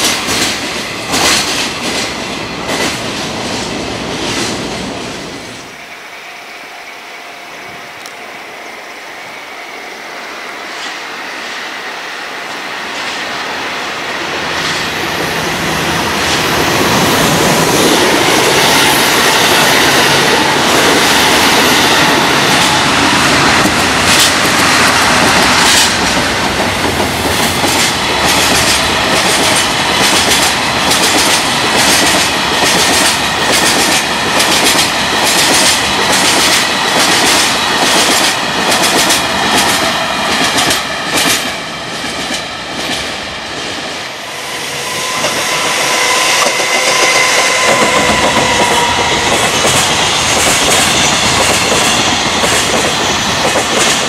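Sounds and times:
train wheels clacking over rail joints: 0.0s - 3.2s, 14.6s - 43.7s, 45.1s - 54.0s
diesel locomotive passing: 0.0s - 54.0s.

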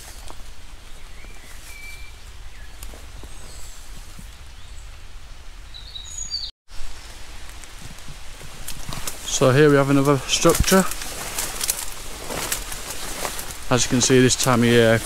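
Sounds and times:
faint bird chirps: 0.9s - 4.9s, 5.7s - 6.5s.

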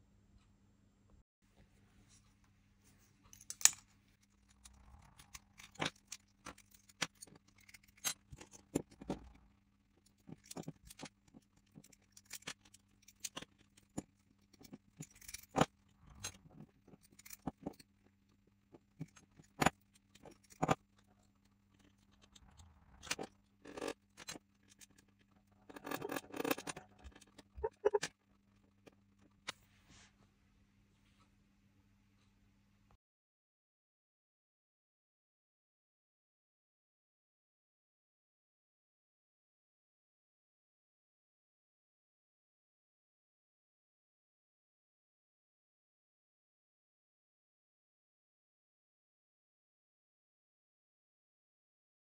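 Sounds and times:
small metal clicks and clinks: 3.3s - 9.4s, 10.0s - 18.0s, 18.8s - 28.2s.

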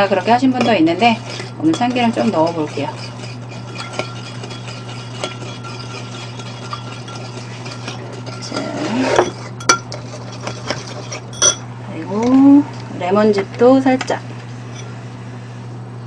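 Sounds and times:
metal spoon stirring in ceramic bowl: 0.0s - 11.7s, 14.7s - 14.9s.

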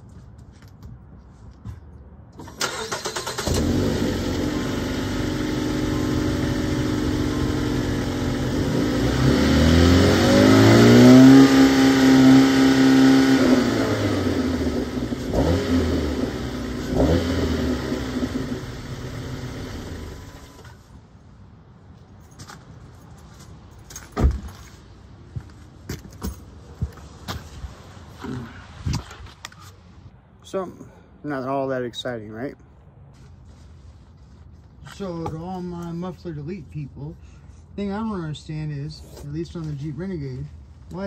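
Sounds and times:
car engine starting and revving: 2.4s - 20.7s.

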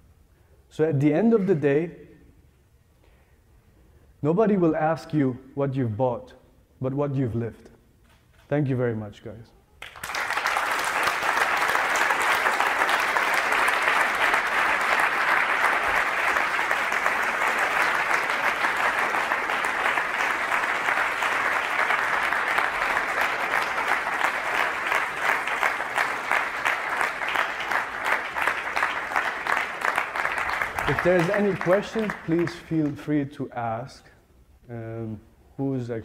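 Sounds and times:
audience applauding: 9.8s - 33.1s.

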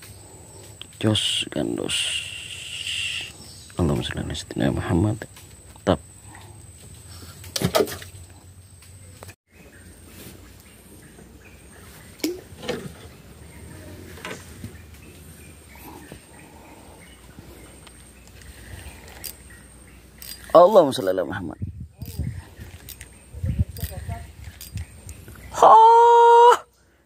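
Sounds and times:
outdoor background hiss: 0.0s - 27.0s.

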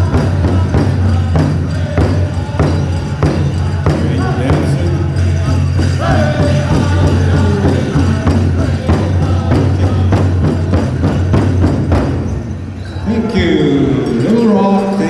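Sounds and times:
big drum beats: 0.0s - 15.0s
drum group singing: 0.0s - 15.0s
man talking: 13.0s - 15.0s.

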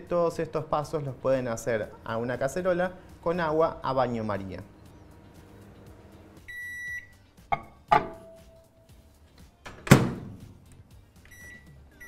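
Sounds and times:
microwave beep: 6.4s - 7.2s, 11.3s - 12.0s
glass bowl set down ringing: 7.5s - 8.4s
microwave door banging shut: 7.9s - 8.2s, 9.7s - 10.4s
latch click: 9.6s - 10.4s.

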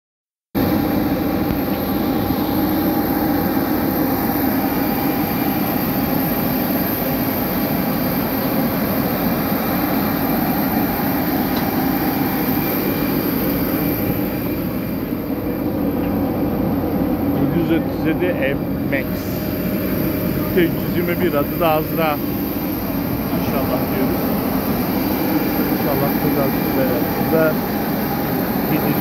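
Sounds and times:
jet aircraft roar: 0.6s - 29.0s.

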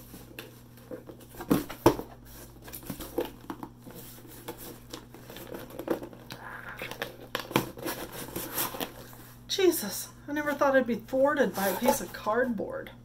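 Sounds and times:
cardboard flaps scraping: 7.3s - 9.1s, 11.5s - 12.2s.

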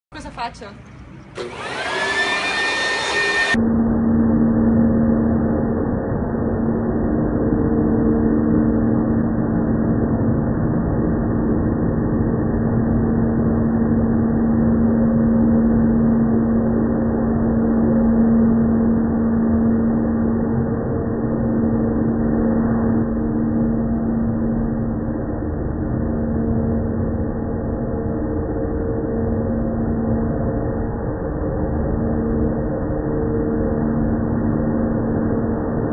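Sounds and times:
electric leaf blower running: 1.3s - 3.6s.

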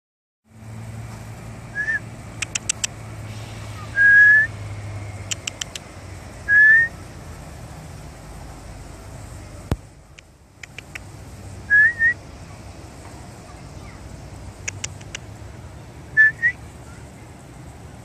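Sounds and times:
person whistling: 1.8s - 2.0s, 4.0s - 4.5s, 6.5s - 6.9s, 11.7s - 12.2s, 16.2s - 16.6s
quick clicks: 2.4s - 3.0s, 5.2s - 5.9s, 9.7s - 11.2s, 14.6s - 15.3s.

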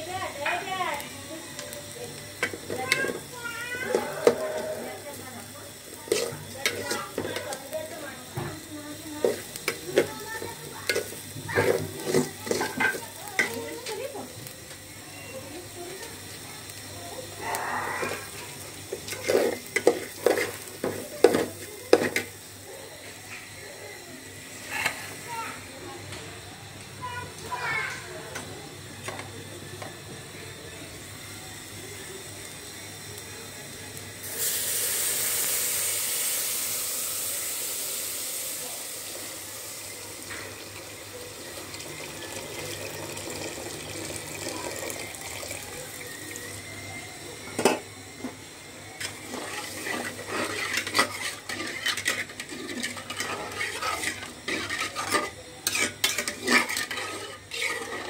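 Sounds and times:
metal spoon scraping a pot: 3.8s - 4.7s, 6.1s - 7.5s, 10.9s - 13.5s, 19.1s - 20.6s, 49.0s - 58.0s
liquid pouring into a metal pot: 34.3s - 46.5s.

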